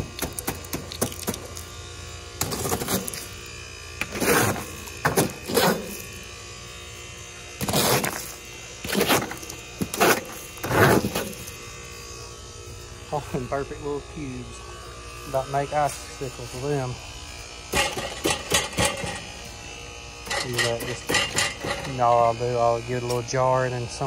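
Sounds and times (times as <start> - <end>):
ice clattering off coil: 0.0 - 1.8, 2.4 - 6.2, 7.6 - 11.6, 20.2 - 22.2
steady low hum: 0.0 - 24.0.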